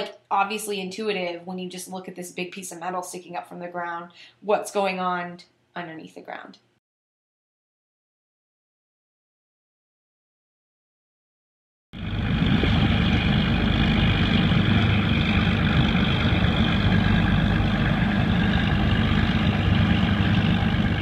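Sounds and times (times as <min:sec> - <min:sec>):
industrial machinery drone: 0:12.0 - 0:21.0.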